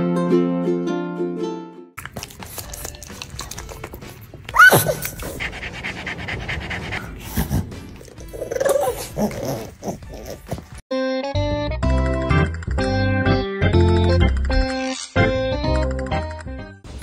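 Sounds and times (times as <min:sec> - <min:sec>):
dog breathing noisily: 0:02.2 - 0:10.8
dog yelping: 0:04.5 - 0:05.4, 0:08.2 - 0:10.6
dog grunting: 0:04.6 - 0:10.8.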